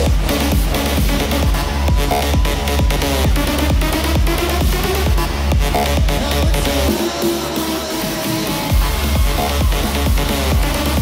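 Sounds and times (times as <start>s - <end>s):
steady kick drum: 0.0s - 6.7s
electronic music: 0.0s - 11.0s
heavy bass line: 0.0s - 11.0s.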